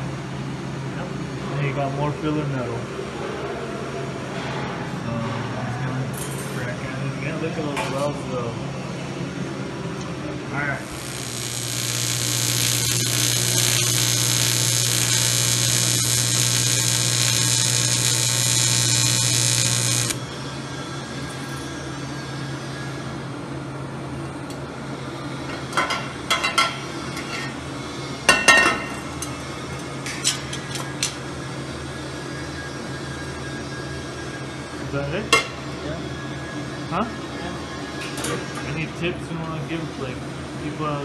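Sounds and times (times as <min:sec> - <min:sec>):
welding arc buzzing: 0:10.7 - 0:20.5.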